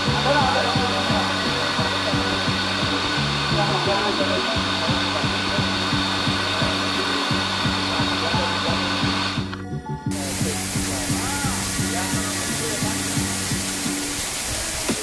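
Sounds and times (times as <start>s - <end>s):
waterfall rushing onto rocks: 0.0s - 9.5s, 10.1s - 15.0s
music with regular beat: 0.0s - 15.0s.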